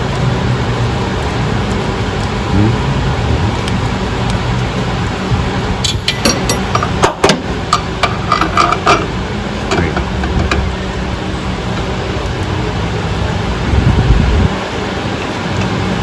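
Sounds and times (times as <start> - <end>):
steady low rumble: 0.0 - 16.0
metal tools clinking: 5.8 - 9.1.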